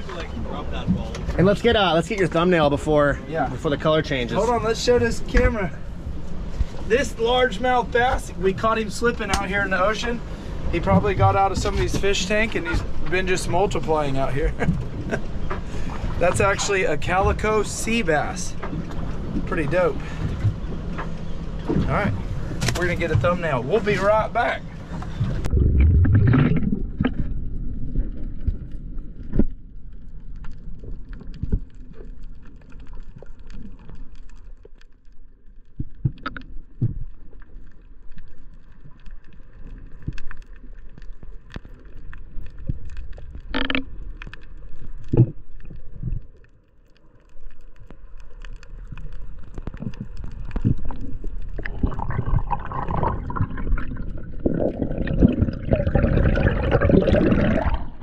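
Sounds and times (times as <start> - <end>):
muffled underwater water rumble: 0.0 - 58.0.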